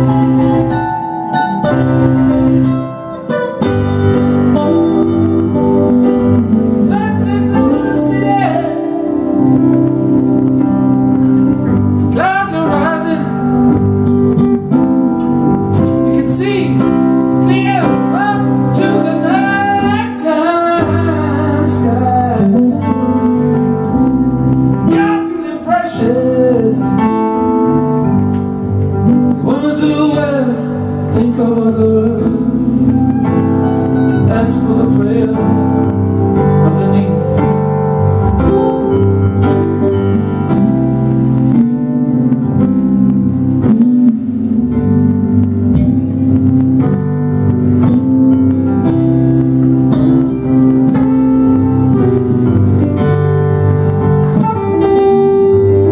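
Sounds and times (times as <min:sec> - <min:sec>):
electric guitar: 0:00.0 - 0:55.9
keyboard chords: 0:00.0 - 0:55.9
man singing: 0:04.9 - 0:10.6, 0:12.0 - 0:13.9, 0:16.0 - 0:27.6, 0:29.0 - 0:39.0, 0:39.9 - 0:46.4.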